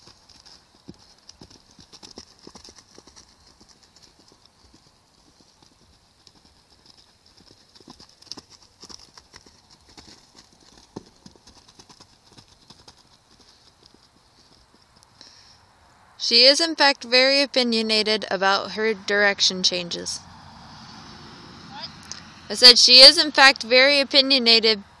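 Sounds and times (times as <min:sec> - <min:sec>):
horse hooves thudding on dirt: 0:00.0 - 0:15.6.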